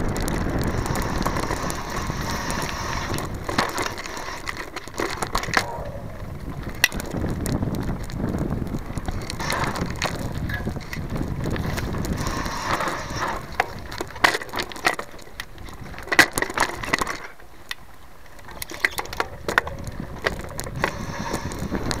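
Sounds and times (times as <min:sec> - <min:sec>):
bike clicks and knocks over bumps: 0:00.0 - 0:22.0
tyre noise on dirt: 0:00.0 - 0:22.0.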